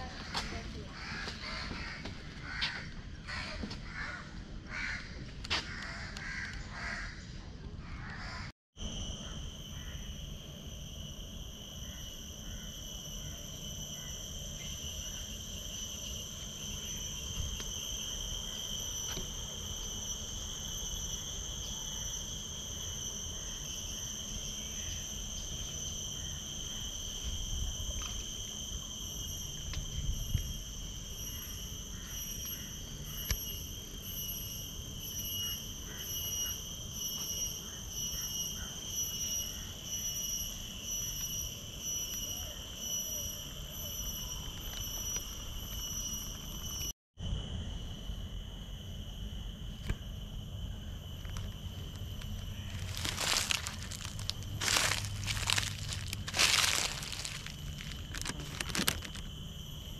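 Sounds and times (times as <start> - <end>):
crows cawing: 0.4 - 7.2
high insect drone: 7.9 - 59.9.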